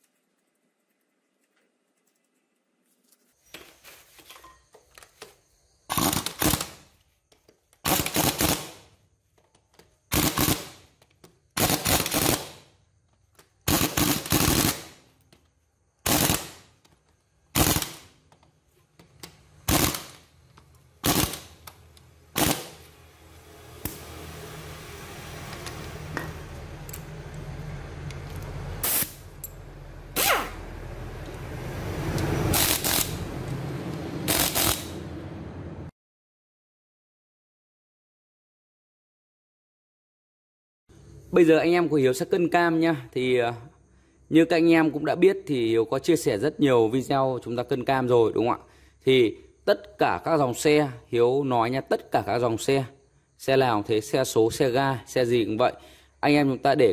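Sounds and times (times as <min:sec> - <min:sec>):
steady background noise: 0:16.0 - 0:35.9.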